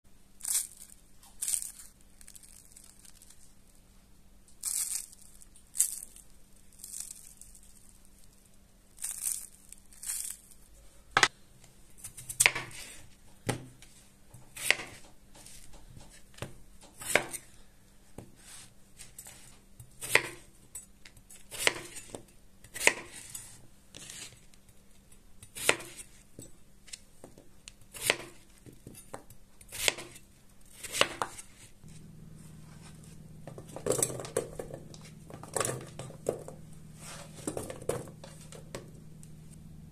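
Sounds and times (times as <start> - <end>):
fried snack crust crackling: 0.4 - 3.8, 4.5 - 10.7
knife cutting potatoes on board: 12.0 - 13.7, 14.4 - 17.5, 18.2 - 20.5, 21.4 - 24.4, 25.5 - 26.2, 27.9 - 32.0.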